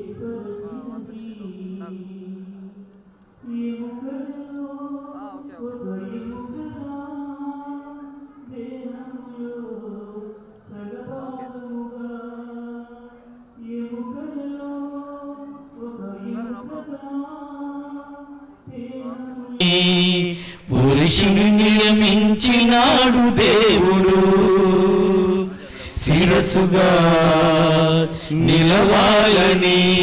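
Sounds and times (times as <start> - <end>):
singer breathing: 20.3 - 20.7, 25.5 - 26.0, 28.0 - 28.4.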